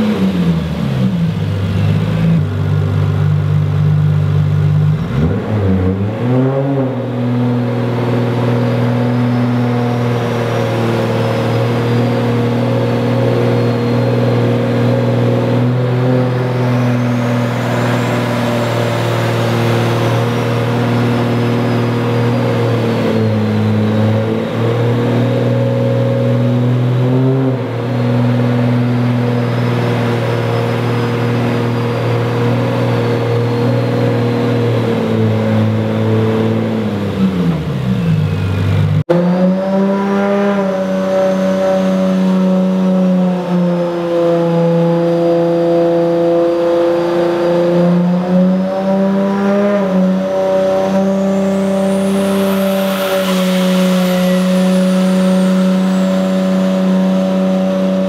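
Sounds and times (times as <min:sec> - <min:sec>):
turbocharged engine revving on a dyno: 0:00.0 - 0:58.0
high turbo whistle: 0:08.6 - 0:27.7, 0:39.2 - 0:58.0.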